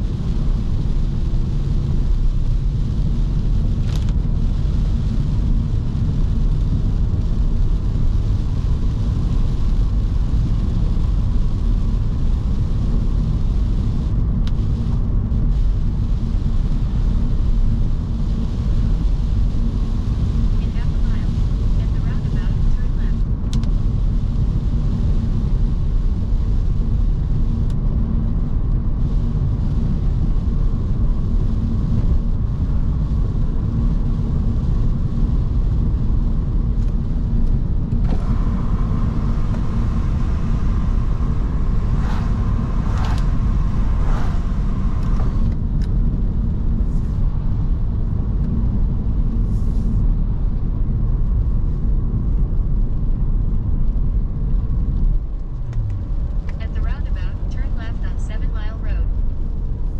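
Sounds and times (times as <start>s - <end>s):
car engine and tyres droning: 0.0s - 59.9s
higher hum with swishes: 38.2s - 45.7s.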